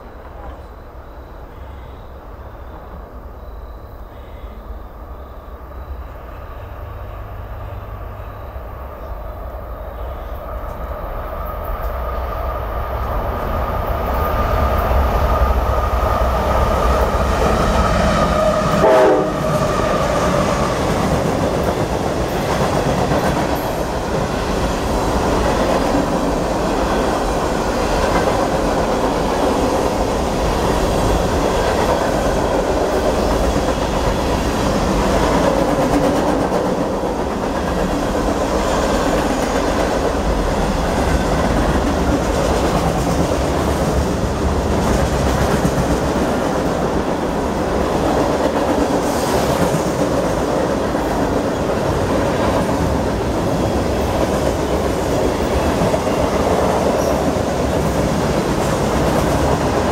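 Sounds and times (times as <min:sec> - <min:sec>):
freight train cars rumbling: 0:00.0 - 0:59.9
locomotive air horn blast: 0:18.7 - 0:19.6.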